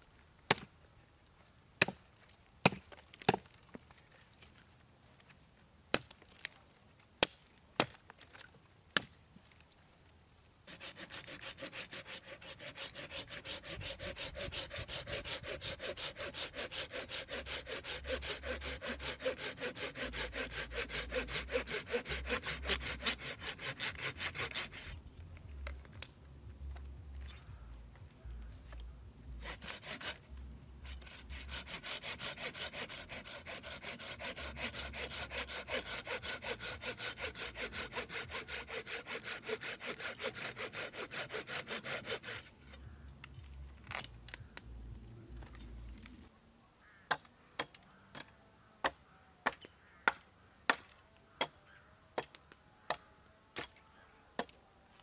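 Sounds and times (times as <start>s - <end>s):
hand saw cutting wood: 10.7s - 25.0s, 29.4s - 42.6s.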